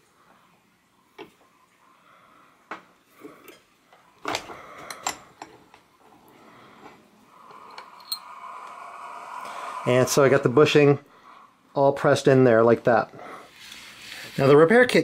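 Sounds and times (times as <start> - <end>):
metal clinks and clanks: 7.7 - 8.3.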